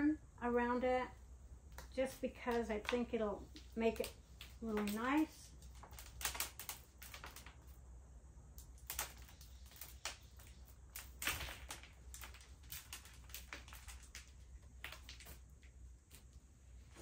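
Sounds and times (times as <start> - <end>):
hands rustling potting soil: 1.7 - 7.8.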